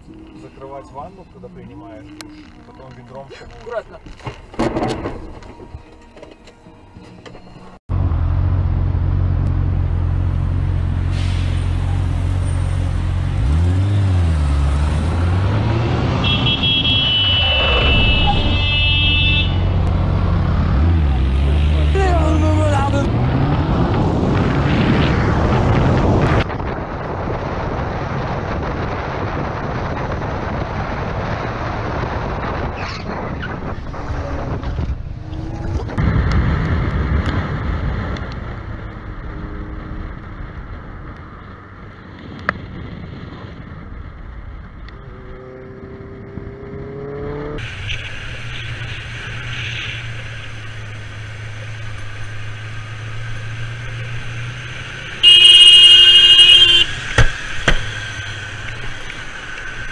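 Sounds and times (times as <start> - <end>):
wind rushing over microphone: 22.2 - 49.7.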